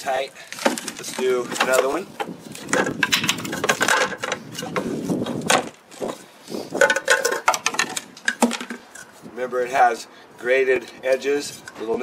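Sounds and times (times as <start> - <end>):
plastic parts clacking and scraping: 0.1 - 9.2.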